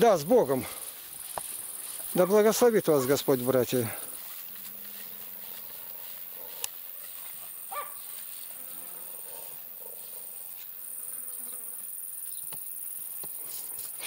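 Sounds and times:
insects buzzing: 0:00.0 - 0:14.0.

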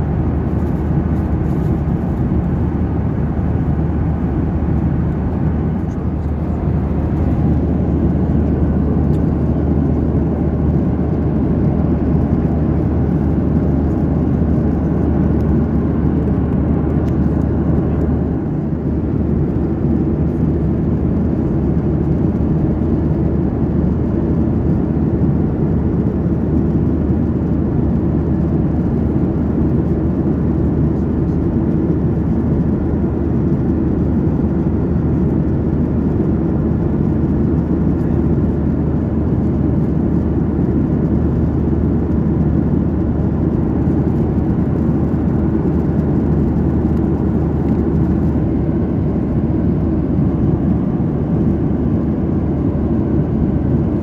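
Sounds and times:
low hum: 0:00.0 - 0:23.8
jet engine drone: 0:00.0 - 0:54.0.

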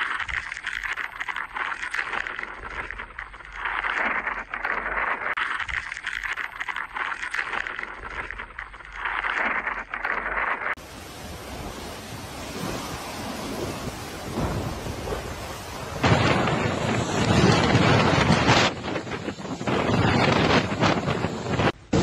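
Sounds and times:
rain: 0:00.0 - 0:22.0
storm wind: 0:09.1 - 0:22.0
wind buffeting microphone: 0:10.8 - 0:22.0.

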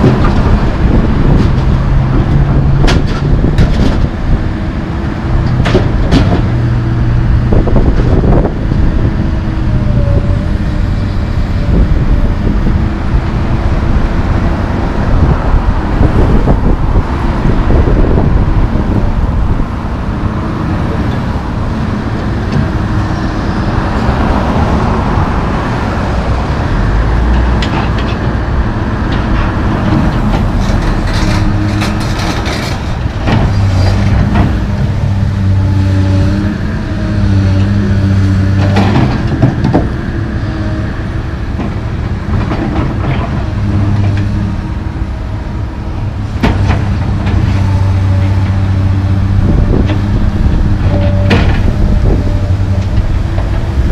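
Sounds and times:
cars driving past: 0:00.0 - 0:53.9
excavator diesel engine: 0:00.0 - 0:53.9.

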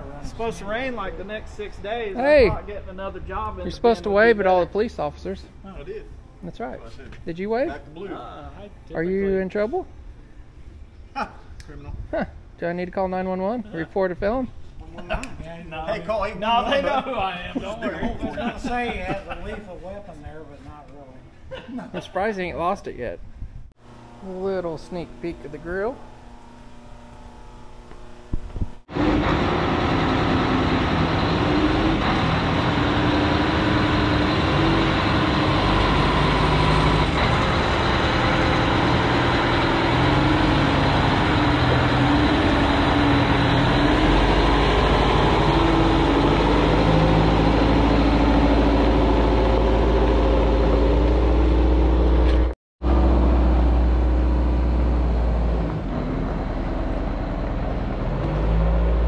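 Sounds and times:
truck engine rumbling: 0:28.8 - 0:59.0.

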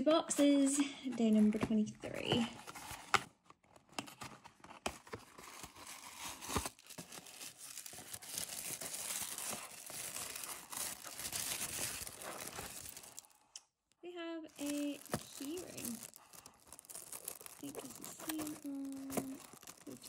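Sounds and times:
tissue paper crinkling: 0:04.9 - 0:13.4, 0:14.5 - 0:20.0.

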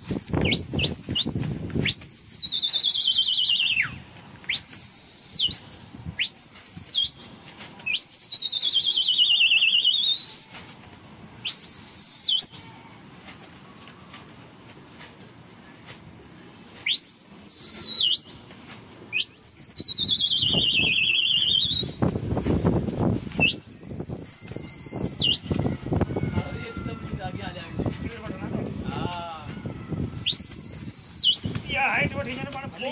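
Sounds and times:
person whistling shrilly: 0:00.0 - 0:10.7, 0:11.4 - 0:12.9, 0:16.8 - 0:18.4, 0:19.1 - 0:22.6, 0:23.3 - 0:26.8, 0:28.9 - 0:31.9.

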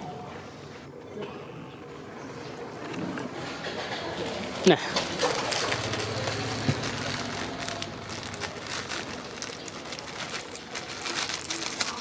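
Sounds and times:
plastic bag crinkling: 0:04.9 - 0:12.0.

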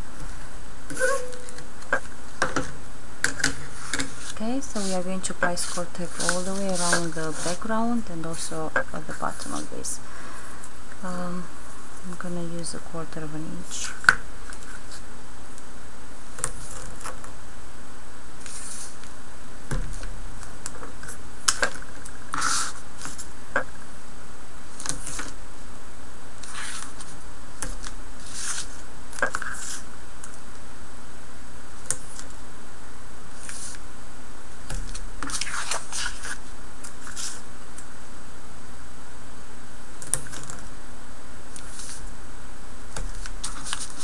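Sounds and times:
tape crackling and scratching: 0:00.9 - 0:09.7, 0:19.9 - 0:23.7, 0:26.4 - 0:30.5, 0:34.6 - 0:37.9, 0:42.9 - 0:44.0.

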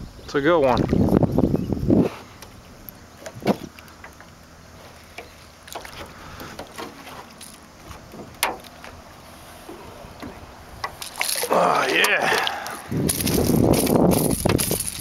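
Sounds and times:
rod and tackle knocks and clicks: 0:03.2 - 0:09.0, 0:10.2 - 0:15.0.

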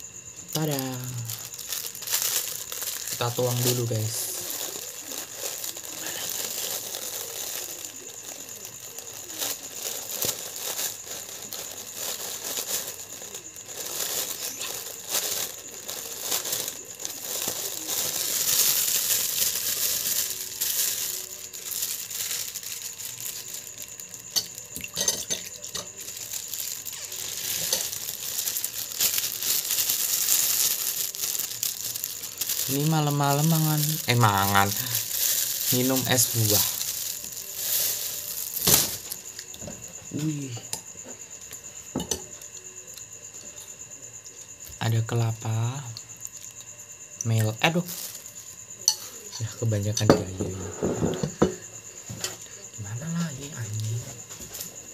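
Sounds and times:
plastic bag crinkling: 0:00.5 - 0:40.3, 0:47.2 - 0:48.6.

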